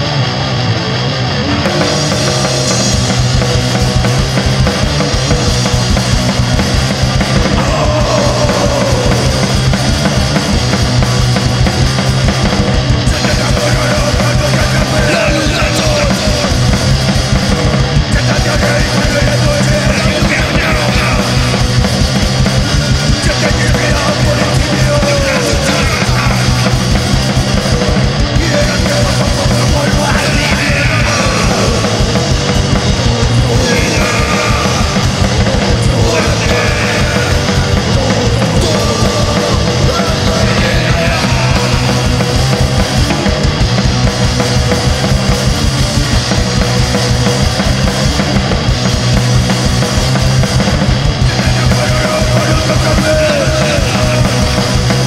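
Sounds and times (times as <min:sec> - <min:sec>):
distorted guitars: 0:00.0 - 0:55.0
rapid drumming: 0:01.5 - 0:55.0
person singing: 0:07.2 - 0:10.1, 0:13.0 - 0:16.9, 0:17.6 - 0:21.8, 0:22.8 - 0:43.6, 0:51.2 - 0:55.0.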